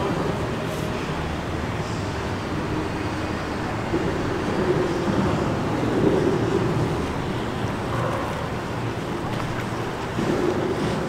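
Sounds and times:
motorboat engines: 0.0 - 11.0
traffic hum on bridge: 0.0 - 11.0.

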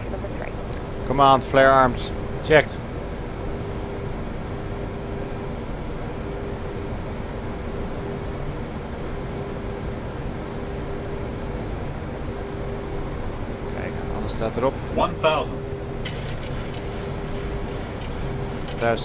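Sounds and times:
aircraft engine hum: 0.0 - 19.0
airflow rush: 14.7 - 19.0.

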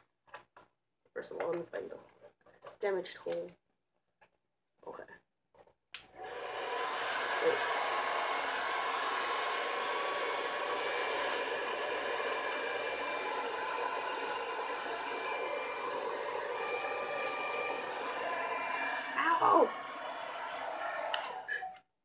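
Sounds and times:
hair dryer running: 6.2 - 21.7.

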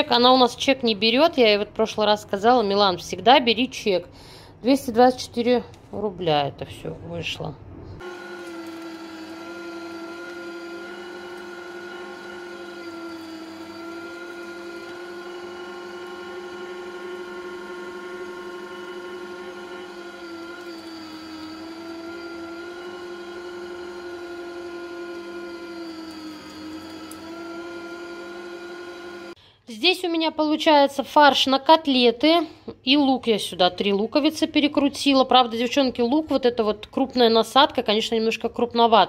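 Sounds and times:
electric meat grinder running: 8.0 - 29.4.

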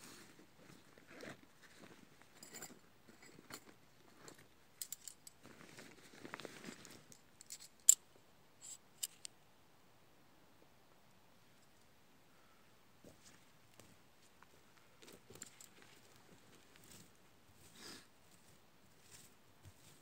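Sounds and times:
light clicks and clinks: 2.3 - 5.4, 6.6 - 8.0, 15.1 - 16.2
metal tent pegs clicking: 7.4 - 8.0, 8.6 - 9.3.

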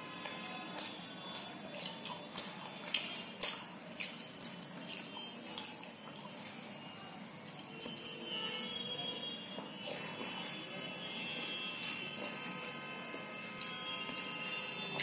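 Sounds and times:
fingers squelching wet rice: 0.3 - 8.2.

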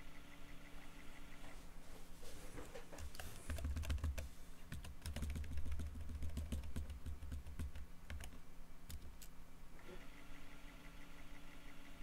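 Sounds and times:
keyboard keys clicking: 3.1 - 9.3.

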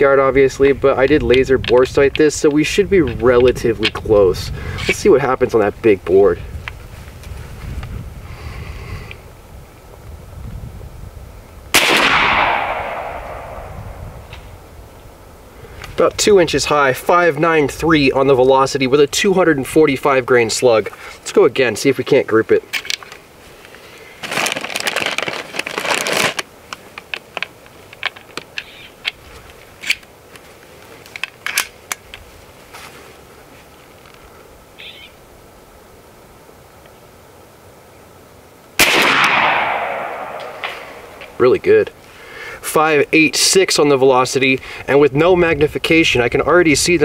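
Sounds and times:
air rifle shot: 11.7 - 14.4, 38.8 - 41.4
rustling: 22.7 - 35.0.

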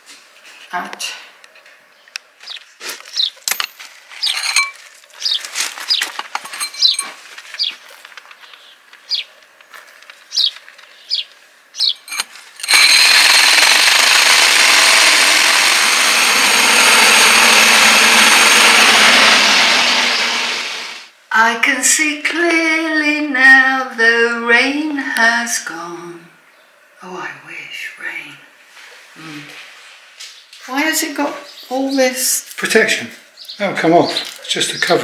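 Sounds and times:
bird chirps: 5.2 - 7.8, 8.4 - 9.3, 10.3 - 12.2
power drill boring through wall: 12.0 - 21.1.

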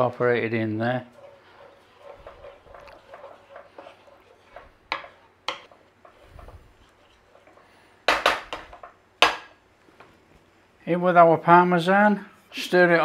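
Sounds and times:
spatula scraping frying pan: 0.0 - 9.0
spatula knocking against pan: 1.2 - 5.8, 8.1 - 9.5.

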